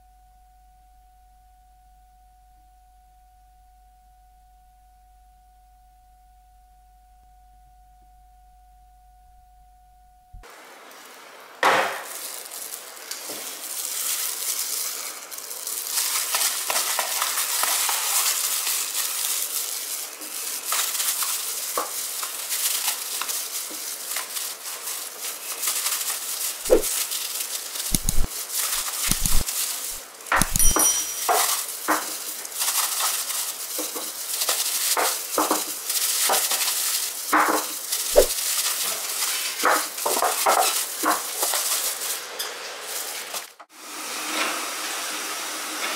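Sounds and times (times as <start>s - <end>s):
gloved hands rubbing inside tin: 27.9s - 30.8s
metal tins clinking: 30.3s - 31.7s.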